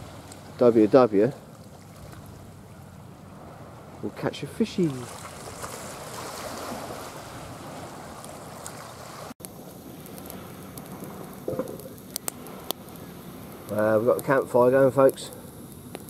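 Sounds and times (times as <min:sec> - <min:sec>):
sea waves lapping on shore: 0:00.0 - 0:14.2
campfire crackling: 0:00.0 - 0:16.0
fire pops: 0:09.4 - 0:16.0.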